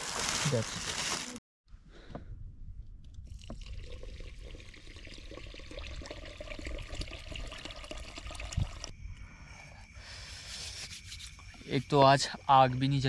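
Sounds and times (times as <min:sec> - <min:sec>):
water pouring into pot: 0:03.3 - 0:08.9.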